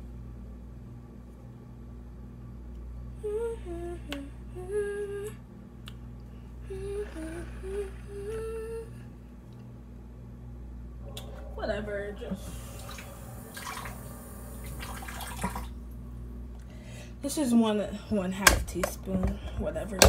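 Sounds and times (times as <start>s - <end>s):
steady low hum: 0.0s - 20.0s
girl humming a tune: 3.2s - 5.4s, 6.6s - 9.1s.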